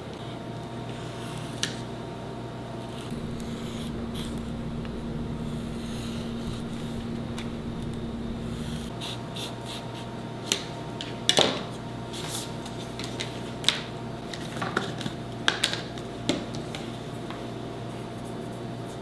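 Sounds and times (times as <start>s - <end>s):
steady room hum: 0.0s - 19.0s.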